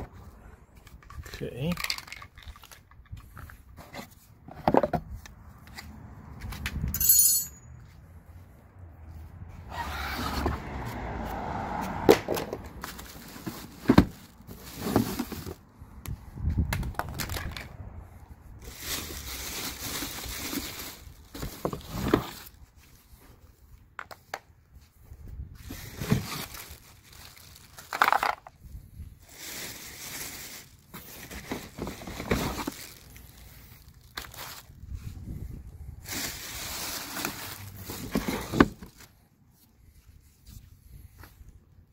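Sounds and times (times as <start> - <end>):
cardboard packaging scraping and rustling: 12.8 - 15.6, 18.6 - 22.6, 25.6 - 28.4, 29.2 - 34.8, 36.0 - 39.2.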